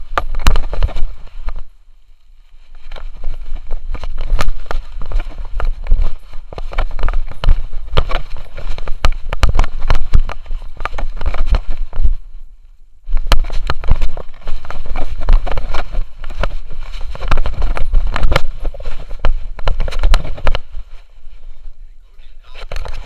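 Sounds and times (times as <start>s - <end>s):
camera mount knocking and rubbing: 3.6s - 11.7s, 13.2s - 20.7s.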